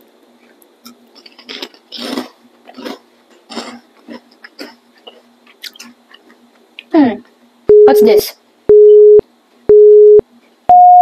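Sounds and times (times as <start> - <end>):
crunchy snack being chewed: 0.8 - 6.6.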